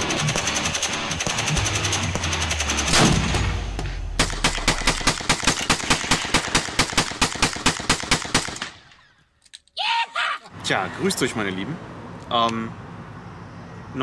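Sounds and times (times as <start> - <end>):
rapid semi-automatic rifle shots: 0.0 - 3.6, 4.2 - 8.9
gunshots: 0.0 - 8.9
loud bang: 2.8 - 5.1.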